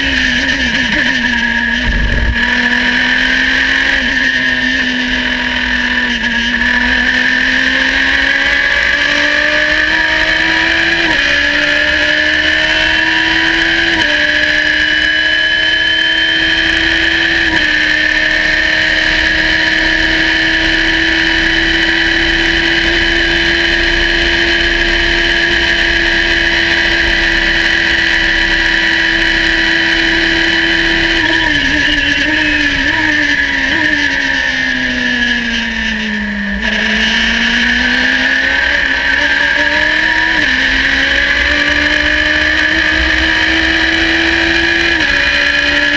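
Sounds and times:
race car engine accelerating: 0.0s - 45.9s
steady high whine: 0.5s - 6.0s, 18.5s - 36.6s.

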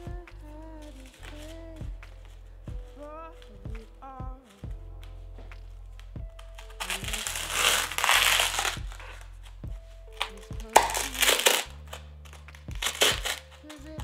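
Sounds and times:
soft background music: 0.0s - 14.0s
knife crunching wafer sheets: 6.6s - 9.2s, 10.2s - 14.0s.

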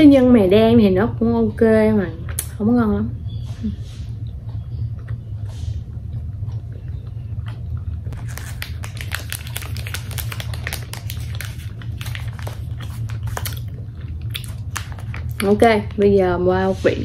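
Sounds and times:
steady low hum: 0.0s - 17.0s
plastic wrappers crinkling: 8.1s - 16.0s.

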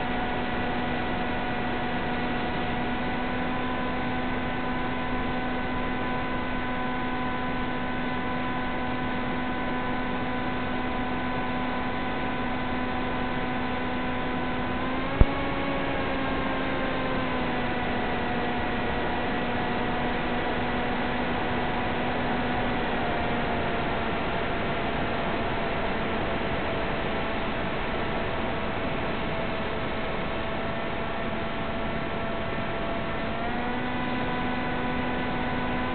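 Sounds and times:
buzzing hum: 0.0s - 35.9s.

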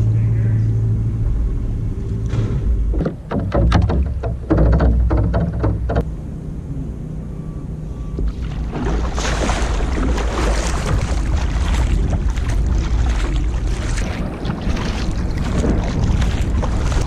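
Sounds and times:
steady low rumble: 0.0s - 5.1s, 5.7s - 17.0s
water rushing along hull: 2.8s - 6.1s, 7.0s - 17.0s
paddle blades splashing: 2.9s - 6.0s, 8.2s - 17.0s.

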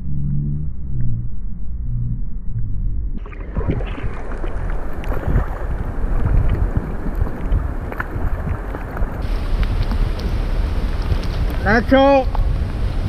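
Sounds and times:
seawater sloshing and splashing: 3.2s - 11.7s.

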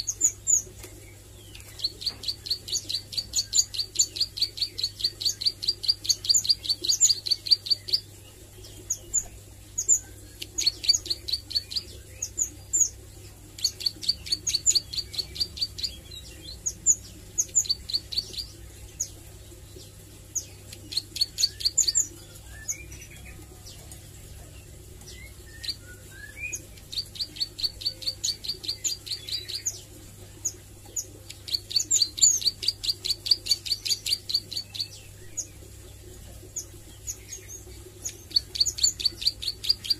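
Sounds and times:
bird singing rapid high notes: 20.4s - 23.4s, 25.1s - 29.8s.

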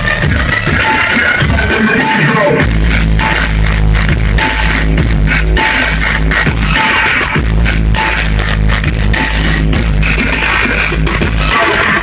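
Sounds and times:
loud electronic music with deep bass: 0.0s - 12.0s.

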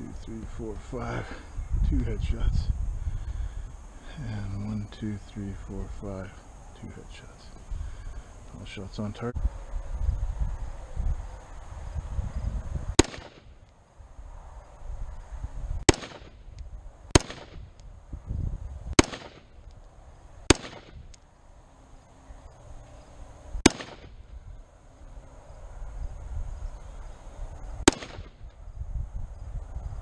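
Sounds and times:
rifle gunshots: 13.0s - 13.6s, 15.9s - 16.5s, 17.1s - 17.8s, 19.0s - 19.6s, 20.4s - 21.0s, 23.6s - 24.2s, 27.8s - 28.4s.

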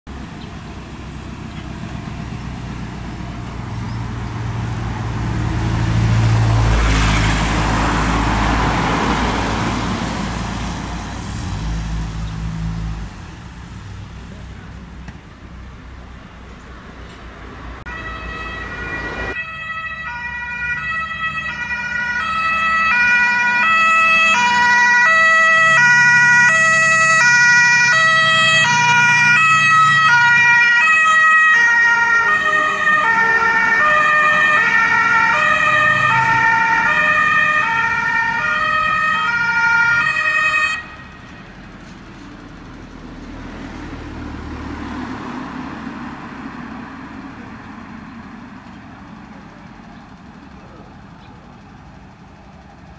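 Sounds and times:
diesel truck engine: 0.1s - 52.9s
two-tone emergency siren: 17.9s - 41.6s.

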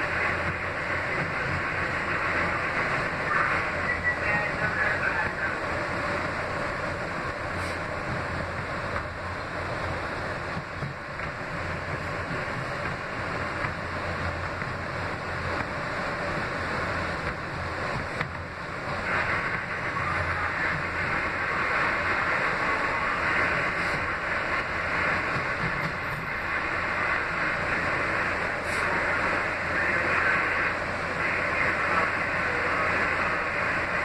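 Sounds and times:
subway train rumbling on rails: 0.0s - 34.0s.

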